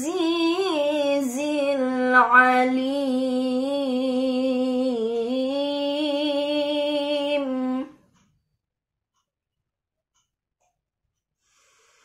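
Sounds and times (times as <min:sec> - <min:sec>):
woman reciting melodically: 0:00.0 - 0:08.0.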